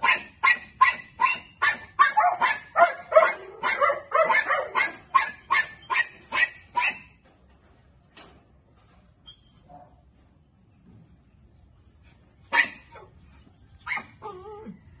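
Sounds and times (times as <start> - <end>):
dog barking: 0.0 - 7.1, 12.5 - 13.1.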